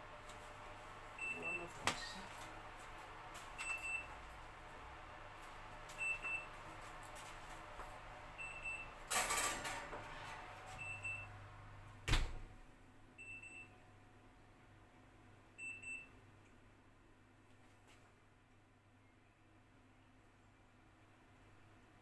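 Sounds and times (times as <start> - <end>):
oven timer double beep: 3.6 - 4.2, 6.0 - 6.5, 8.4 - 9.0, 10.8 - 11.4, 13.2 - 13.8, 15.6 - 16.2.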